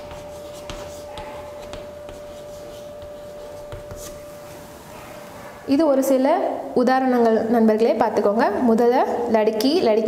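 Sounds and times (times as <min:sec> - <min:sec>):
chalk scratching on chalkboard: 0:00.0 - 0:04.3.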